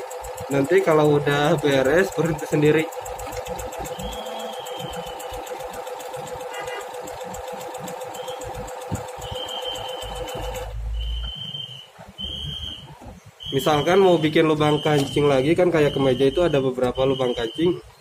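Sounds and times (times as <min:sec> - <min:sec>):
sewing machine stitching: 0:00.0 - 0:10.8.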